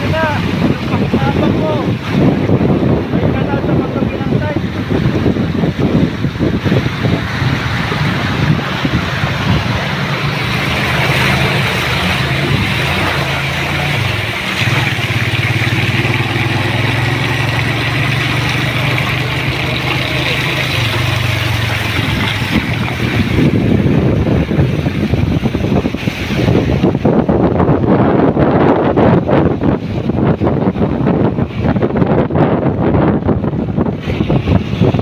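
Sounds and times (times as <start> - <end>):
rushing water: 0.0 - 35.0
wind buffeting microphone: 0.0 - 35.0
motorcycle engine running: 4.8 - 28.0.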